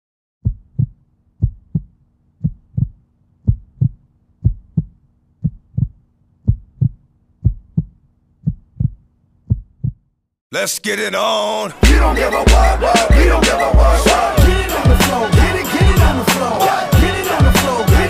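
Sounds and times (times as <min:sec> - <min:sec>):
heartbeat thumps: 0:00.4 - 0:10.1.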